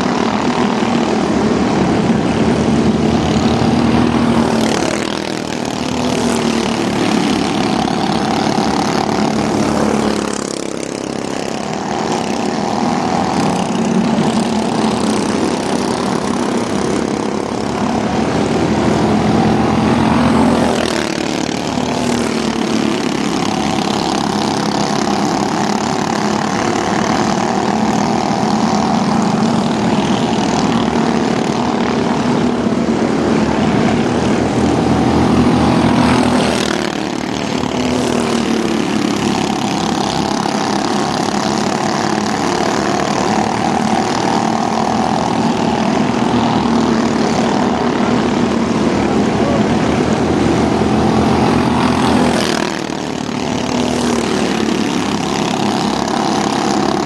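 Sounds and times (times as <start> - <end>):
racing truck engines: 0.0 - 57.0.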